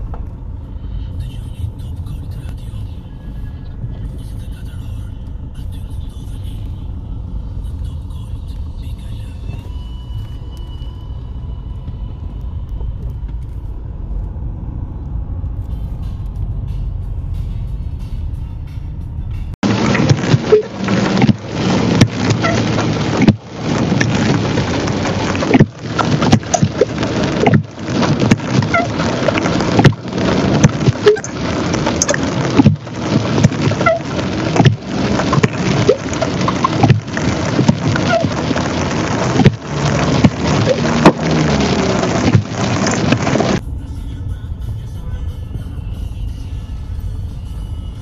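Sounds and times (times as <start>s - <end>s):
rain pattering on car roof: 19.6s - 43.6s.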